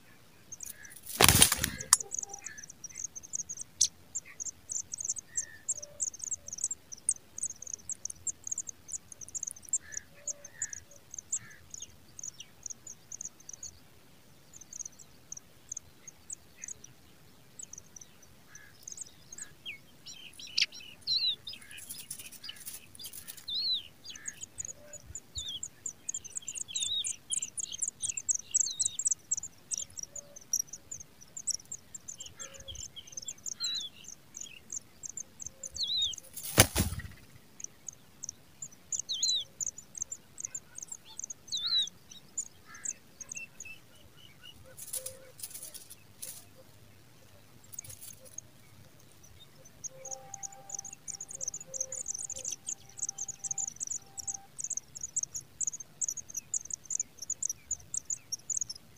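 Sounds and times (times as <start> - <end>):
nestlings high chirps: 0.4 - 58.9
lower down-slurred bird calls: 49.6 - 55.2.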